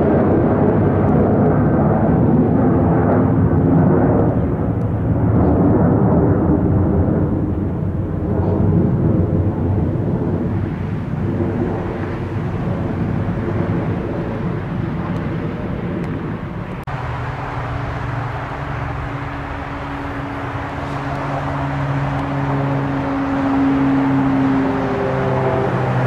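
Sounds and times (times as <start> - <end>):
jet engines rumbling: 0.0 - 26.0
steady hum with low drone: 0.0 - 26.0.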